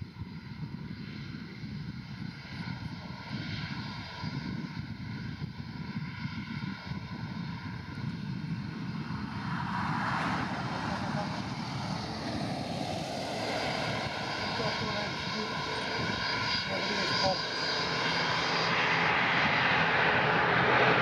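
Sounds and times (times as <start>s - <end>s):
jet engines at takeoff: 0.0s - 21.0s.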